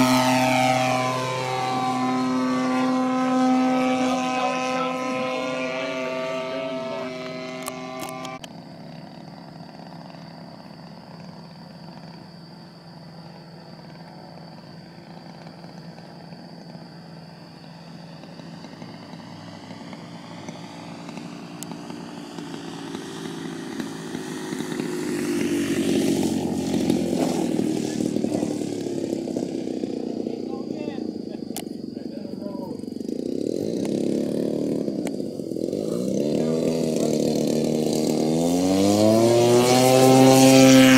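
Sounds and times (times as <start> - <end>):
model plane engine buzzing: 0.0 - 40.9.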